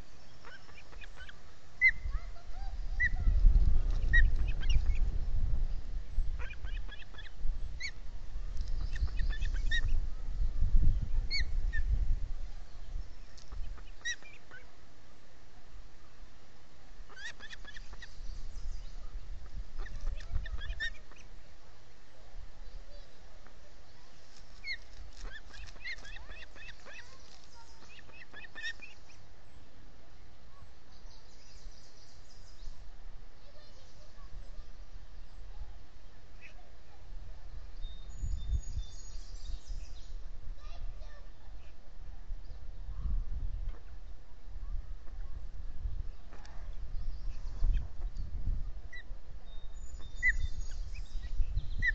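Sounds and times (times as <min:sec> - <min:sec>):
ospreys chirping: 0:00.0 - 0:05.1, 0:08.7 - 0:10.0, 0:17.1 - 0:21.4, 0:24.6 - 0:29.2
wind rumble on microphone: 0:01.0 - 0:14.6, 0:17.2 - 0:21.5, 0:31.4 - 0:51.9.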